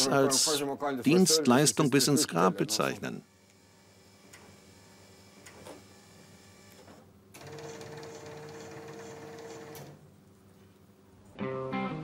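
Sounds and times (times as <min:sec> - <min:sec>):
guitar music: 0:11.4 - 0:12.0.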